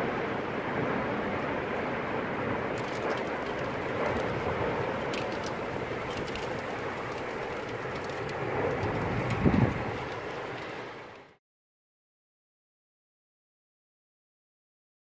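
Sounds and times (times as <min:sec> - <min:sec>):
rushing storm wind: 0:00.0 - 0:11.4.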